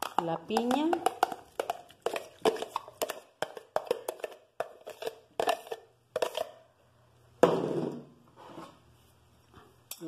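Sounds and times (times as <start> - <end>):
fruit pieces tapping into glass bowl: 0.0 - 4.4.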